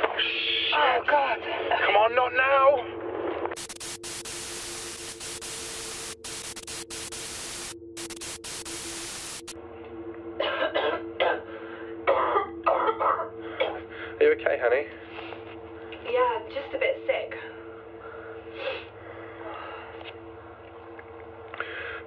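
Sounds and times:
low steady hum: 0:02.9 - 0:22.0
video static hiss: 0:03.6 - 0:09.6
person coughing: 0:10.4 - 0:11.5, 0:12.1 - 0:13.9.

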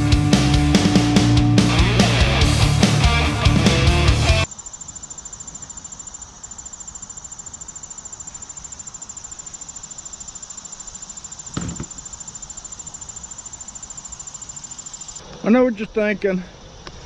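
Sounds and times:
insects chirping: 0:04.2 - 0:17.0
low thump: 0:11.5 - 0:12.0.

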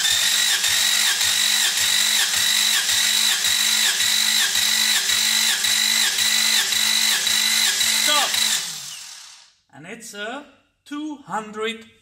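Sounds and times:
starter motor cranking: 0:00.0 - 0:09.5.

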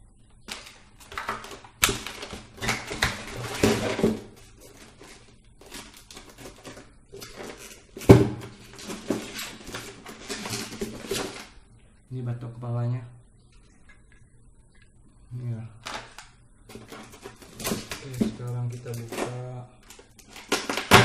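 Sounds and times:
plastic parts clattering: 0:00.5 - 0:11.6, 0:15.8 - 0:21.0.

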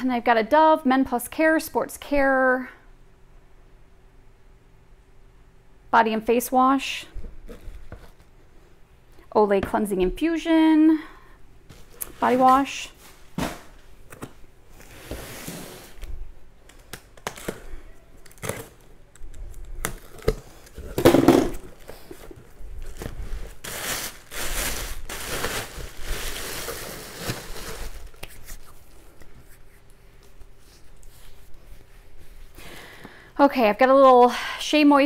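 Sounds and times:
packaging crinkling and rustling: 0:16.6 - 0:29.4.

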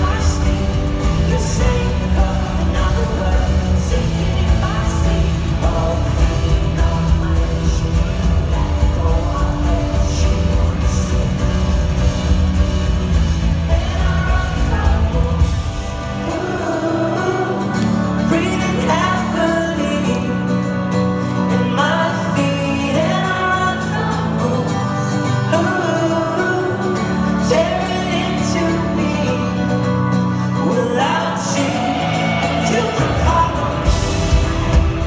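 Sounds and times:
deep bass: 0:00.0 - 0:19.8, 0:31.7 - 0:35.0
drums: 0:00.0 - 0:35.0
person singing: 0:00.0 - 0:35.0
strummed acoustic guitars: 0:00.0 - 0:35.0.

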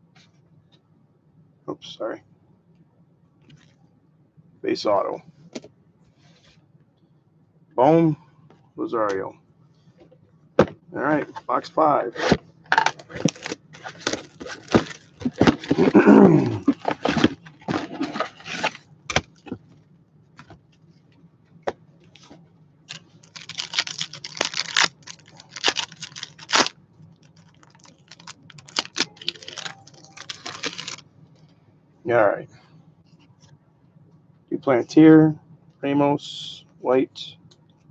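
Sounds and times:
packs rustling: 0:12.2 - 0:19.6, 0:23.2 - 0:26.7, 0:27.4 - 0:31.0
wrapper crinkling: 0:12.8 - 0:18.8, 0:22.9 - 0:31.0
cardboard tearing: 0:13.1 - 0:19.3, 0:23.3 - 0:26.7, 0:27.7 - 0:31.0.

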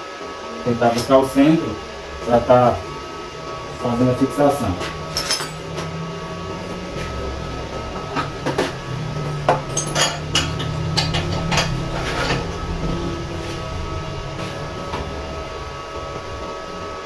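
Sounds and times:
steady low hum: 0:00.0 - 0:17.0
metal parts knocking and clinking: 0:05.1 - 0:05.6, 0:09.2 - 0:11.7.

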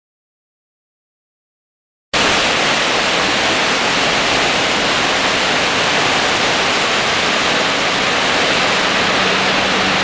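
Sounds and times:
loud rush of floodwater: 0:02.2 - 0:10.0.

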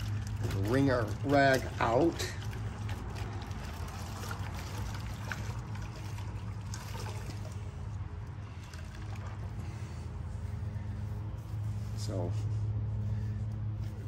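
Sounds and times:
water trickling and dripping: 0:00.0 - 0:09.9
wet rag being wrung out: 0:00.0 - 0:10.0
steady low hum: 0:00.0 - 0:14.0.

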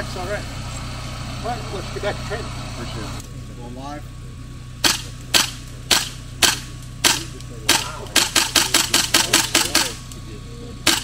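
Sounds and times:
rifle shots: 0:04.8 - 0:10.0.

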